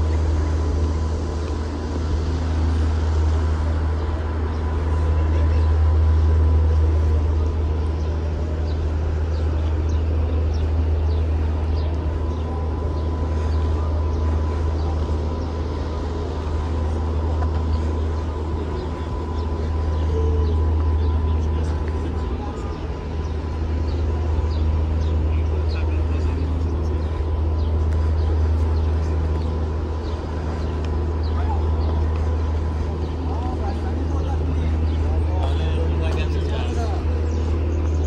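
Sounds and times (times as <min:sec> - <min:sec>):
city traffic rumble: 0:00.0 - 0:38.0
thin steady whine: 0:00.0 - 0:38.0.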